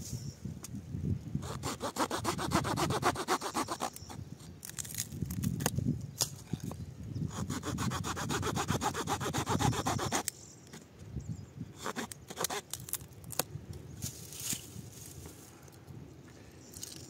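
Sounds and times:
saw blade rasping through wood: 1.4s - 4.0s, 7.3s - 10.2s.

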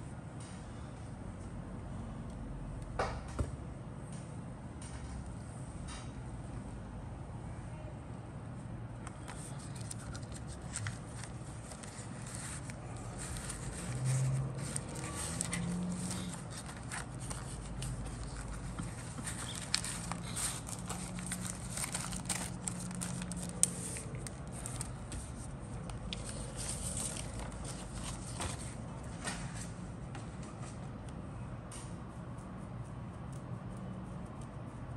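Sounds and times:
plastic bag crinkling: 9.4s - 25.0s.

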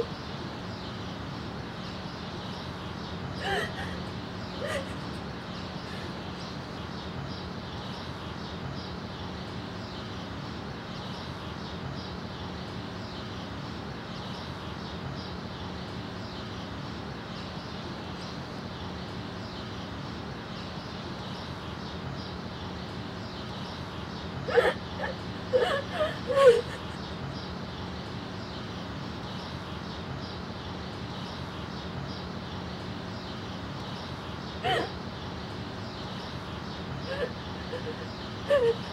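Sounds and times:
faint low hum: 0.0s - 38.9s.

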